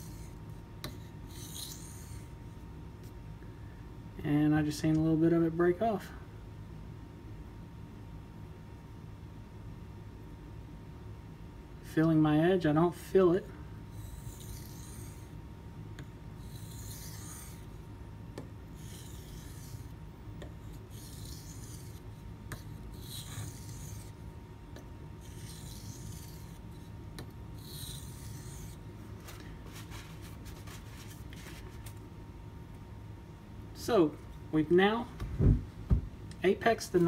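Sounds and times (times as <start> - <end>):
knife scraping on whetstone: 0.0 - 2.3, 14.0 - 15.3, 16.4 - 17.8, 18.8 - 20.0, 20.7 - 24.2, 25.2 - 26.9, 27.6 - 28.8.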